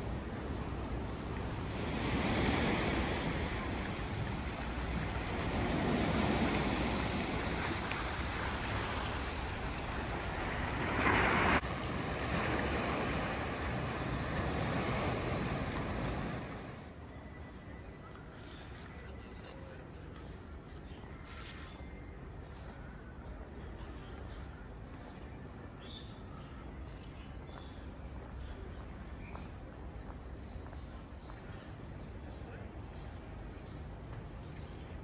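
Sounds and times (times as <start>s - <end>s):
sea surf washing onto shore: 0.0s - 16.9s.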